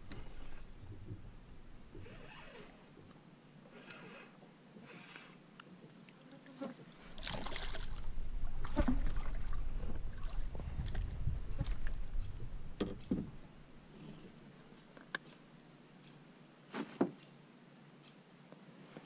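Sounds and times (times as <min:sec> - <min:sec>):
low rumbling: 0:00.0 - 0:03.1, 0:07.0 - 0:15.0.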